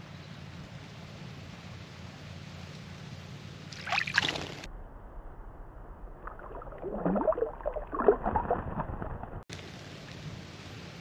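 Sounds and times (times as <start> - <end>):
low churning of water: 1.0 - 4.7, 6.1 - 11.0
water splashing: 3.6 - 4.7, 6.2 - 11.0.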